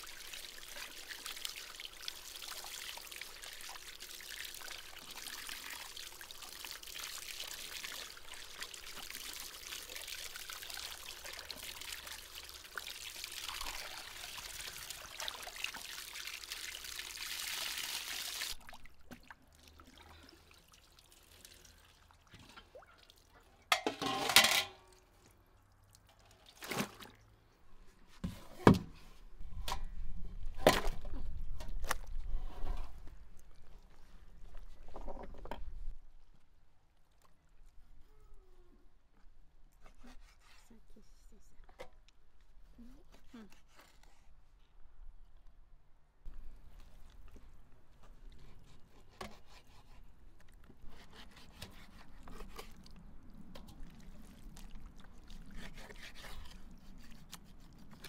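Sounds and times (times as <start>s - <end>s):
water pouring from a hose: 0.0s - 23.3s, 52.2s - 58.0s
hands rubbing and rinsing tripe: 53.7s - 58.0s.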